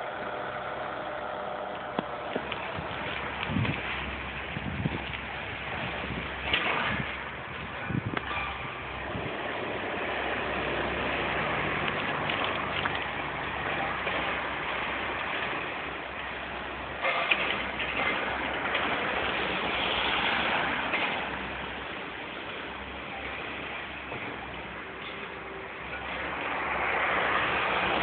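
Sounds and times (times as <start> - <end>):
demolition machinery: 0.0 - 28.0
street traffic: 0.0 - 28.0
clattering and crackling: 6.3 - 8.8, 16.9 - 21.9.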